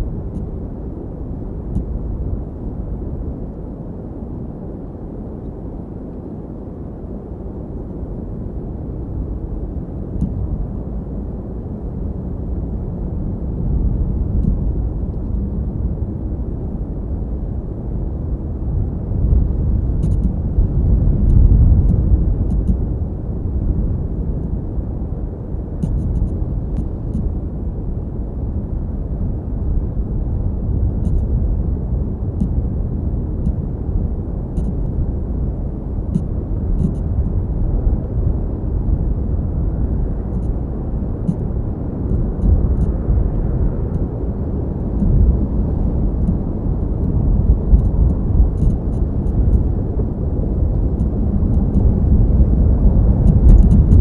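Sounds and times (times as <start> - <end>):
low outdoor rumble: 0.0 - 54.0
faint ticks: 21.2 - 22.8, 25.8 - 27.3, 31.0 - 31.3, 34.6 - 35.0.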